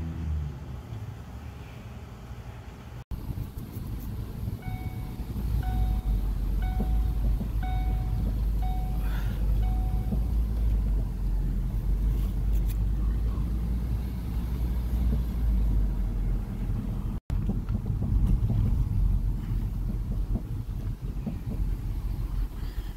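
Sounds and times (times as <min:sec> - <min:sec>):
road and wind rumble in car: 0:00.0 - 0:22.9
short beeps: 0:04.6 - 0:10.4.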